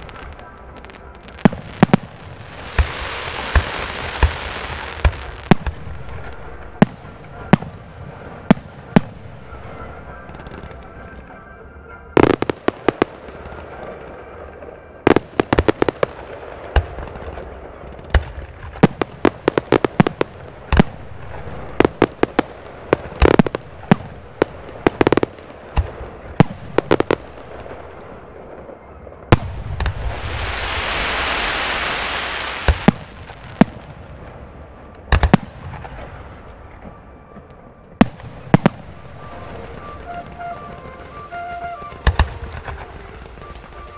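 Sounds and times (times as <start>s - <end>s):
fireworks bursting bangs: 0.0s - 11.4s, 12.1s - 43.9s
loud hiss: 29.8s - 33.3s.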